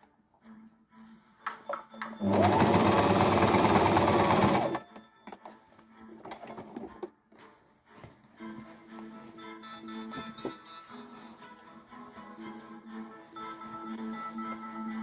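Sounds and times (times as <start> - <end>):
sewing machine stitching: 2.2 - 4.8.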